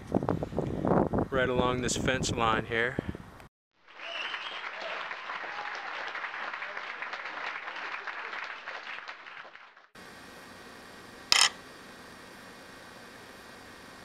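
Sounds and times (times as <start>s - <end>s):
ring clinking on scale: 11.3s - 11.6s.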